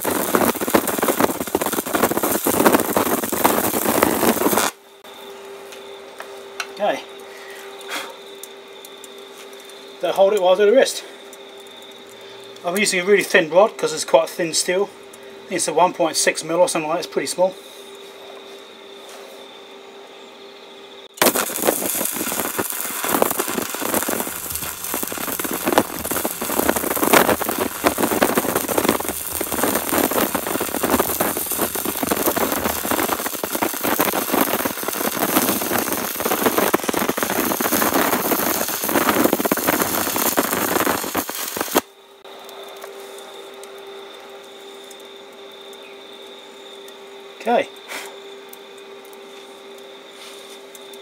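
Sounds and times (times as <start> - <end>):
arc welding crackle: 0.0 - 18.7, 21.0 - 51.0.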